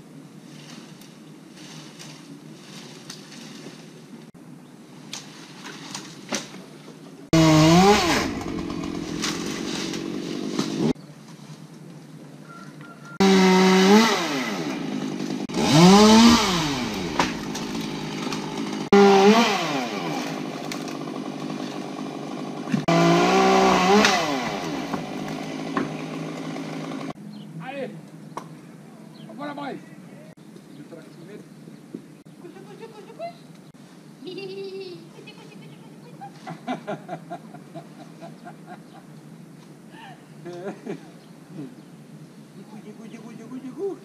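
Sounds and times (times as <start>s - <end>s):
chainsaw revving: 7.3s - 11.0s, 13.2s - 27.2s.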